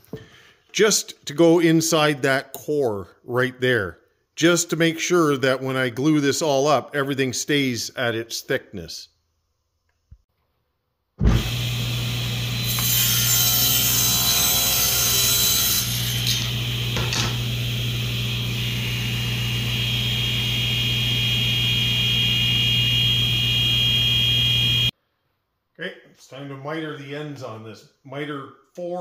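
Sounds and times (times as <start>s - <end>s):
table saw cutting plywood: 11.2s - 24.9s
saw blade high whine: 11.3s - 24.9s
motor hum: 16.2s - 24.9s.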